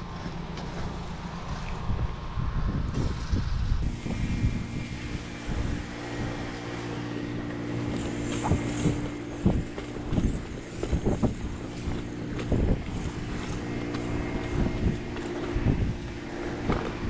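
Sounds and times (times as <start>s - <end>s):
wind buffeting microphone: 1.0s - 17.0s
motor humming: 3.7s - 17.0s
wand spraying onto roof tiles: 3.8s - 17.0s.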